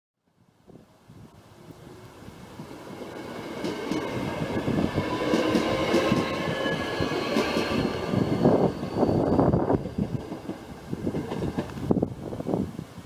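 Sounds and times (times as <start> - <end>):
faint train whine: 0.3 - 13.0
train wheel and running noise: 2.5 - 12.7.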